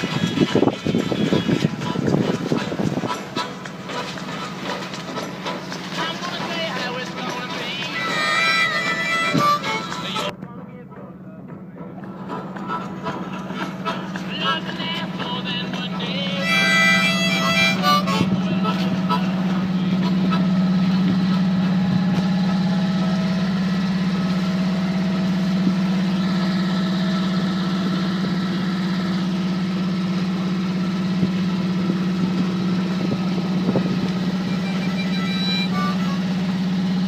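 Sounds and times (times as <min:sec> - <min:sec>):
boat engine humming: 0:00.0 - 0:37.0
faint harmonica notes: 0:08.0 - 0:10.3, 0:16.4 - 0:20.6, 0:34.4 - 0:36.8.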